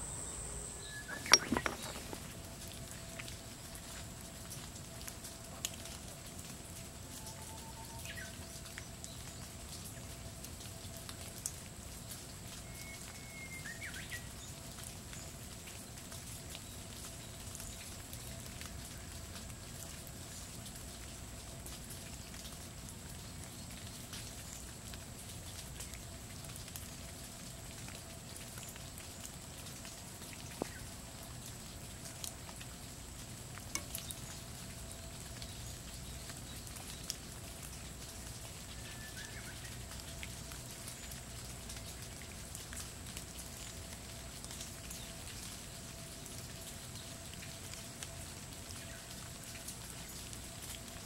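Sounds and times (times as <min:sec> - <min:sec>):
thin high tone: 0:00.0 - 0:02.3
rain on leaves and stone: 0:00.0 - 0:51.0
water drips: 0:00.0 - 0:51.0.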